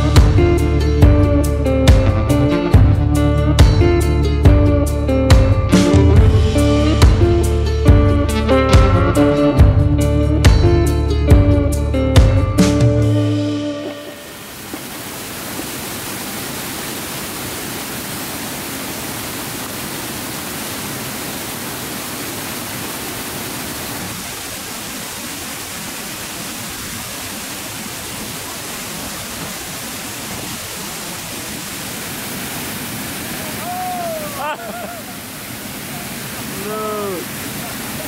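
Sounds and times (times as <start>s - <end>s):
waterfall pouring into pool: 13.8s - 38.0s.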